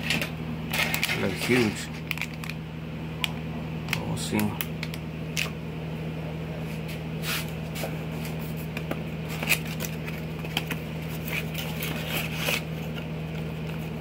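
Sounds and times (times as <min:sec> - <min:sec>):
steady low hum: 0:00.0 - 0:14.0
cardboard box scrapes and rustles: 0:11.1 - 0:12.7.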